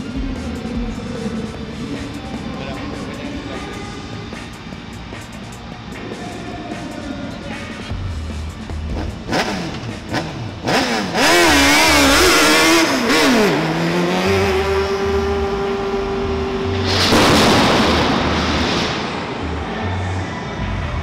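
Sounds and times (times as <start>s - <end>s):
car engine revving: 0.0s - 21.0s
pulsing bass beat: 7.9s - 17.0s
loud rushing hiss: 16.6s - 20.0s.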